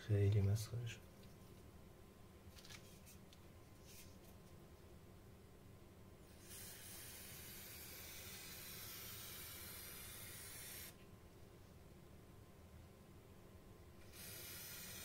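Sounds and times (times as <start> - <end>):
spray paint can hissing: 6.4 - 11.0, 14.1 - 15.0.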